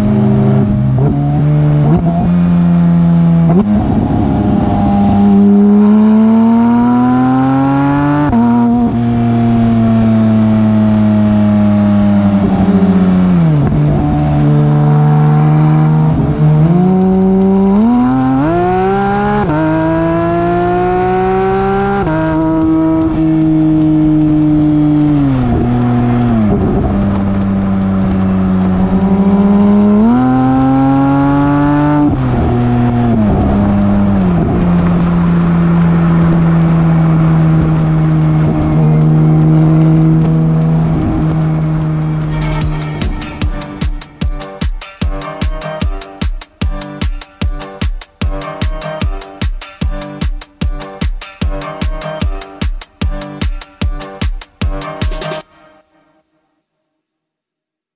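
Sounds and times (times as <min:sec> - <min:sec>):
sports car engine accelerating: 0:00.0 - 0:44.5.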